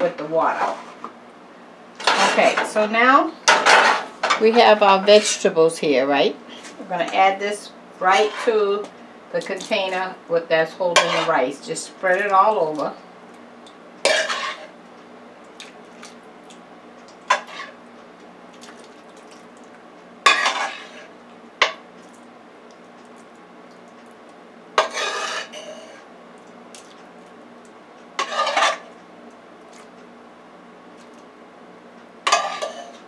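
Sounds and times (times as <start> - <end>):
metal spoon clanking on pan: 10.9 - 11.3, 32.3 - 32.9.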